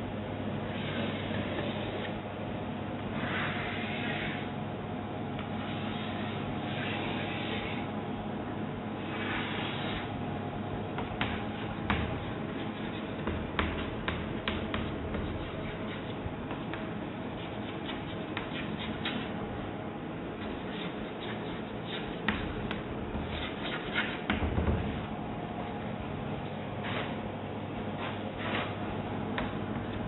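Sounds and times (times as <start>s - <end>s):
chalk tapping and scratching: 5.4s - 7.9s, 9.0s - 10.1s, 11.0s - 19.6s, 20.3s - 25.1s.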